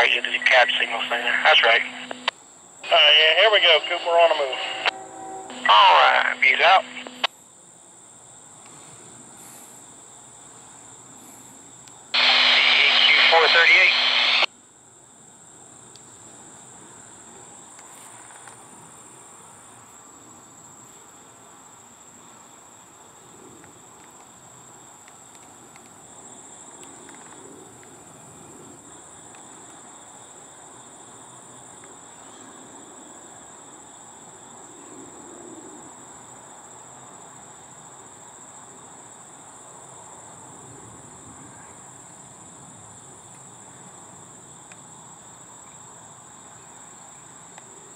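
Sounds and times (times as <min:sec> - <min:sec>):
faint low hum: 0:00.0 - 0:07.3.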